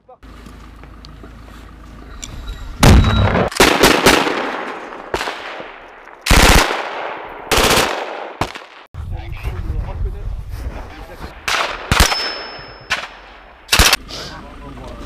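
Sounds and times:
machine gun bursts echoing: 3.5s - 5.7s, 6.3s - 8.5s, 11.5s - 14.0s.

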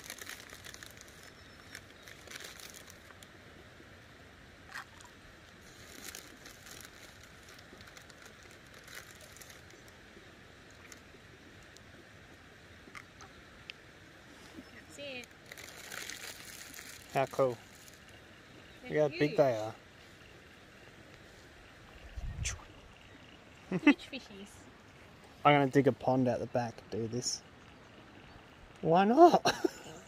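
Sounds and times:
rustling crackles: 0.0s - 3.4s, 4.7s - 11.9s, 14.3s - 20.4s.

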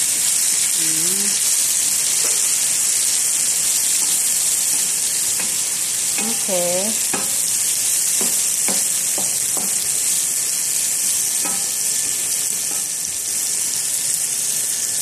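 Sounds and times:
beans sizzling in frying pan: 0.0s - 15.0s
wooden spatula knocking pan: 6.2s - 6.4s, 7.1s - 7.4s, 8.1s - 9.8s.

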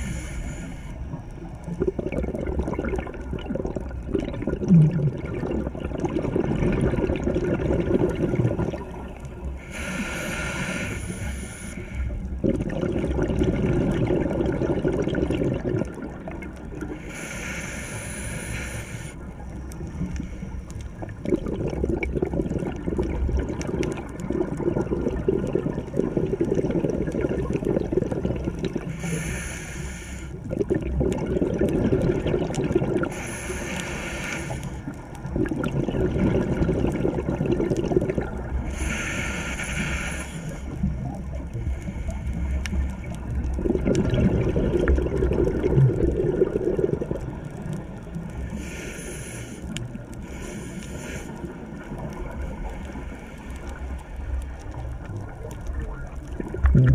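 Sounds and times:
diver inhaling through regulator: 0.0s - 1.3s, 9.5s - 12.4s, 16.9s - 21.2s, 28.8s - 30.4s, 33.0s - 35.0s, 38.5s - 43.2s, 48.4s - 51.8s
exhaled air bubbling underwater: 0.0s - 56.9s.

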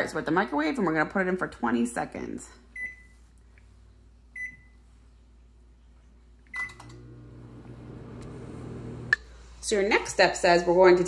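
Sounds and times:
microwave keypad beep: 4.4s - 4.8s
microwave running hum: 6.5s - 9.2s.

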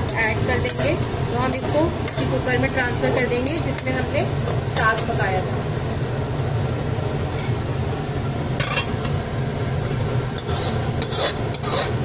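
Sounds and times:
ladle scraping metal pot: 10.3s - 12.0s.

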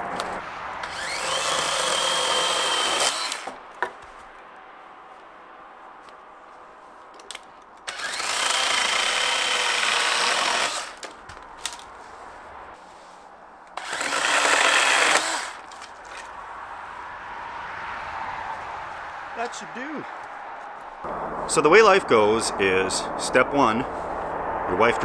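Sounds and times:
electric chainsaw cutting branches: 0.1s - 3.7s, 7.8s - 11.8s, 13.8s - 16.3s.

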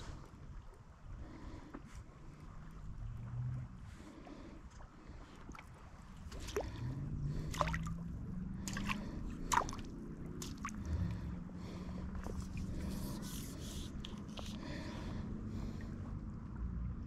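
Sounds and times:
low steady rumble: 0.0s - 17.0s
water splashing and dripping: 5.5s - 11.3s.

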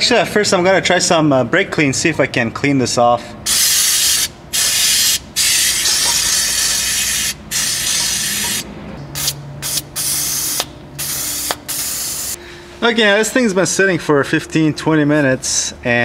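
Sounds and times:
aerosol spray can hissing: 3.5s - 8.6s, 9.2s - 12.4s.

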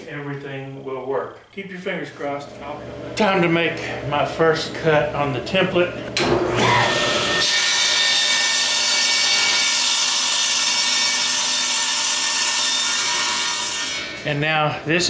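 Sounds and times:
table saw cutting board: 6.2s - 14.2s.

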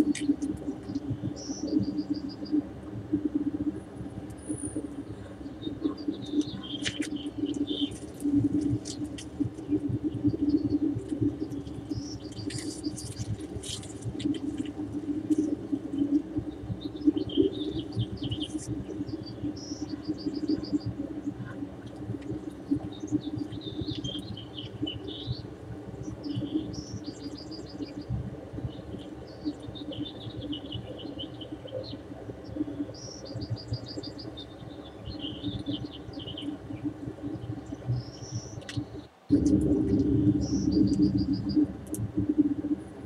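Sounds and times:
low background noise: 0.0s - 43.0s
small birds chirping and singing: 5.3s - 10.8s, 22.5s - 39.2s.

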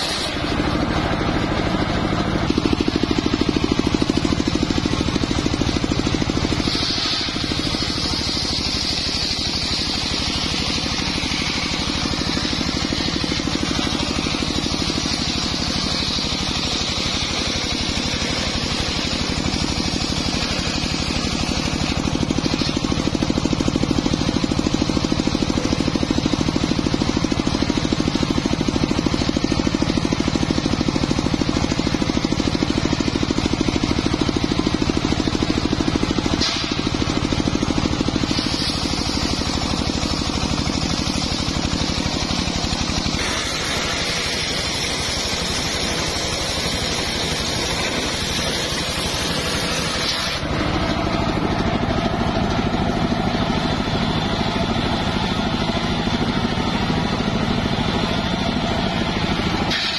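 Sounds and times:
circular blade cutting log: 0.0s - 0.8s, 2.5s - 23.3s, 36.4s - 36.9s, 38.2s - 50.5s, 59.6s - 59.9s
sawmill engine running: 0.0s - 59.9s.

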